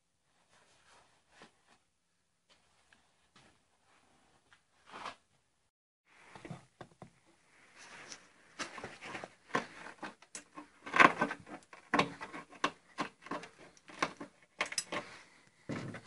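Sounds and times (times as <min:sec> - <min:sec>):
handling clicks taps and rustles: 0:08.1 - 0:16.0.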